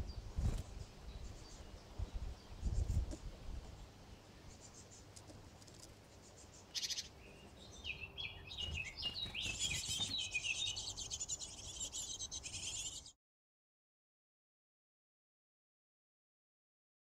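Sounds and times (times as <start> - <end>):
nestlings cheeping: 8.0 - 13.1.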